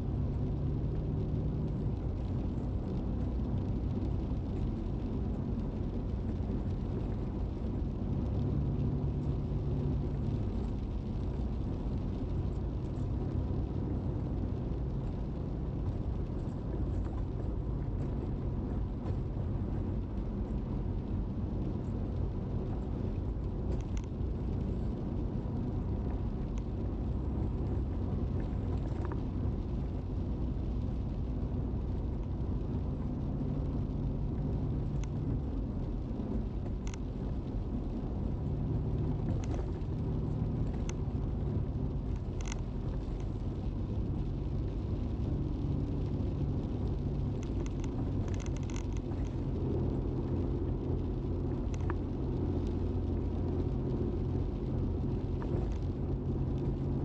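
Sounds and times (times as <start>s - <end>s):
car engine drone: 0.0s - 57.0s
faint clicks: 23.0s - 24.8s, 34.3s - 38.0s, 38.9s - 43.8s, 46.8s - 57.0s.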